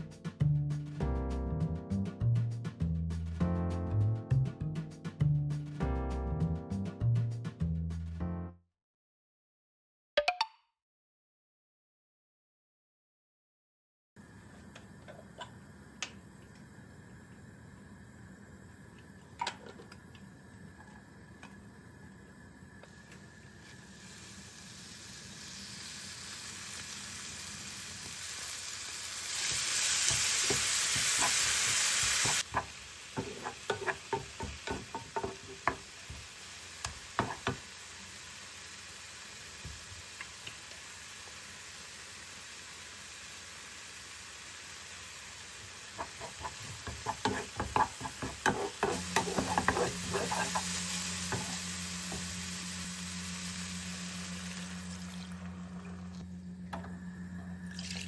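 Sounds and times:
food sizzling in a frying pan: 0:16.7 - 0:56.1
spatula clicking and scraping pan: 0:30.1 - 0:35.9, 0:36.8 - 0:37.6, 0:46.0 - 0:52.3.

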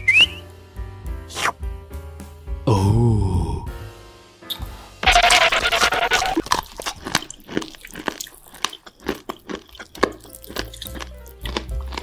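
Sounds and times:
crunching and chewing: 0:05.2 - 0:12.0.

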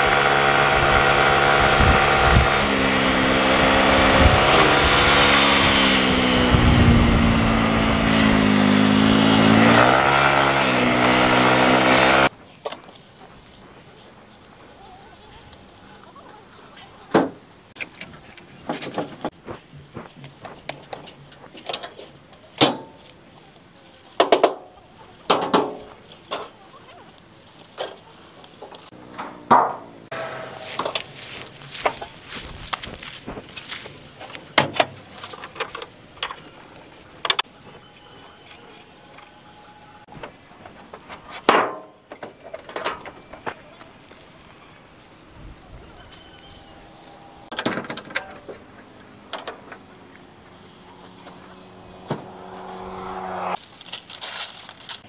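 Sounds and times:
knocks on rusted metal: 0:29.2 - 0:31.0.

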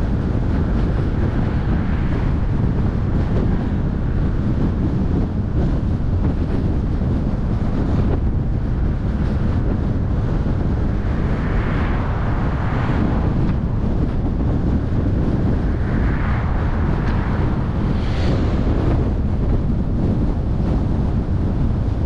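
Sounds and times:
road and tyre rumble: 0:00.0 - 0:22.0
wind buffeting microphone: 0:00.0 - 0:22.0.

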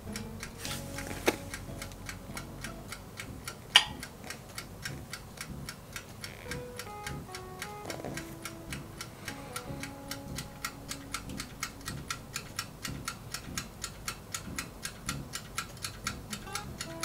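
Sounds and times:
dial timer ticking rapidly: 0:00.0 - 0:17.0
soft background music: 0:00.0 - 0:17.0.

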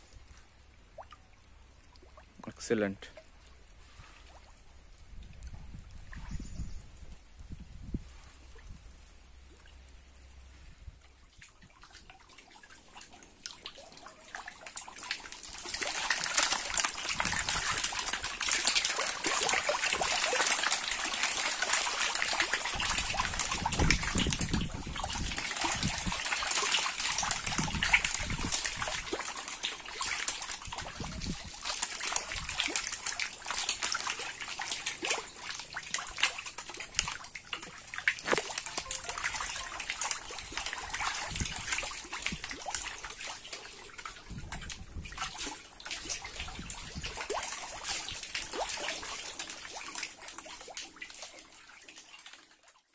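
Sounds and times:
water splashing in tank: 0:11.3 - 0:52.9.

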